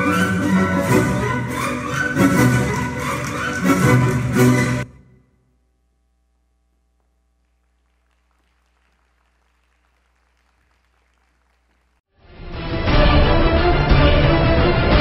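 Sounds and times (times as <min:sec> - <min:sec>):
faint audience applause: 0:01.7 - 0:04.8, 0:07.4 - 0:12.1
faint steady hum: 0:05.0 - 0:12.0.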